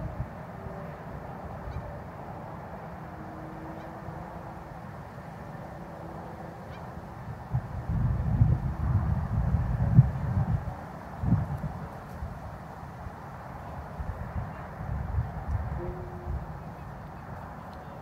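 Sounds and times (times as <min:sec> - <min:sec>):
faint hum: 0:15.4 - 0:18.0.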